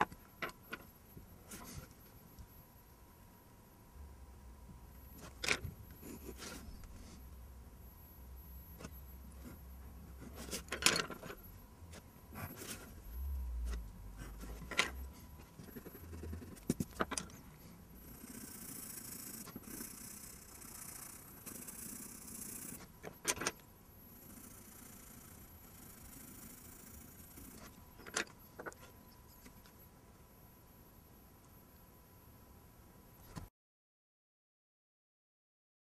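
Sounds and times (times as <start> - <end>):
pencil scratching on paper: 6.0 - 7.2, 8.8 - 13.0, 14.2 - 17.1, 18.0 - 22.9.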